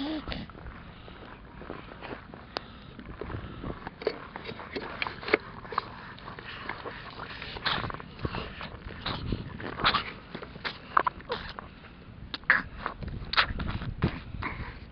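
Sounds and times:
baby mouth sounds: 0.0 - 0.5, 12.3 - 14.6
baby breathing: 0.0 - 1.2
handling noise on camera: 3.2 - 11.7.

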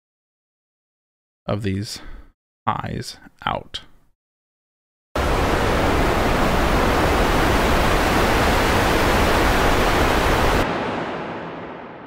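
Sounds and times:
synthesized noise: 5.2 - 12.0
reverb tail: 10.5 - 12.0.

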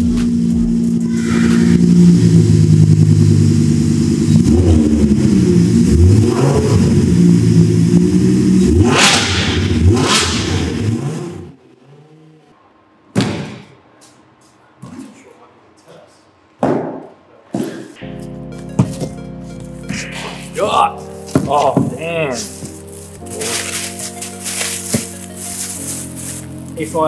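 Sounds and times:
sports car engine revving: 0.0 - 12.0, 18.0 - 27.0.

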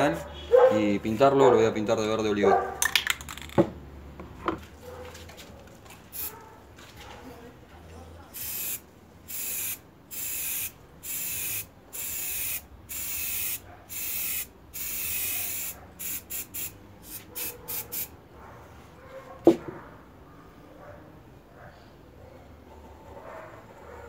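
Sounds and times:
spray-paint can hissing: 6.1 - 6.3, 8.4 - 18.1.

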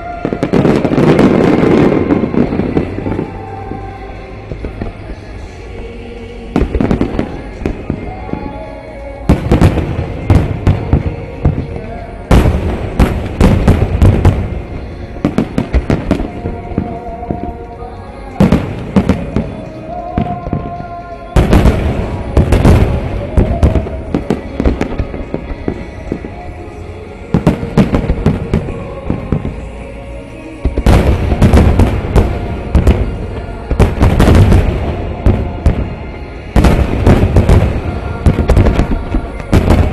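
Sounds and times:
firework crackles: 0.0 - 39.9
music: 0.0 - 39.9
firework shells booming: 9.3 - 17.4, 30.8 - 39.9.

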